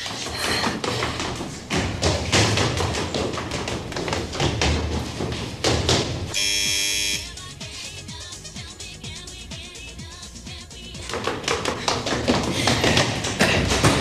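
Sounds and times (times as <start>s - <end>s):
footsteps running up stairs: 0.0s - 7.1s, 10.6s - 14.0s
doorbell buzzer: 6.4s - 7.3s.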